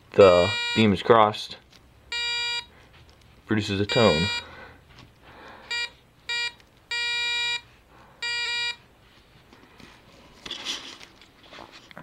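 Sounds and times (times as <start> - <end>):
buzzy electronic alarm beep: 3.9 - 4.5.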